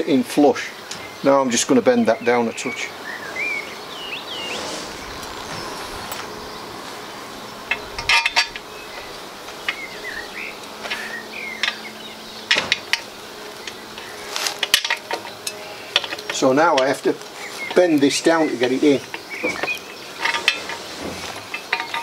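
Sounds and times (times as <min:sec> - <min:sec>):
outdoor background noise: 0:00.0 - 0:22.0
bird chirps: 0:02.0 - 0:12.7, 0:17.3 - 0:20.9
metal frame parts knocking and clinking: 0:07.6 - 0:09.8, 0:10.8 - 0:13.8, 0:14.4 - 0:17.1, 0:17.7 - 0:22.0.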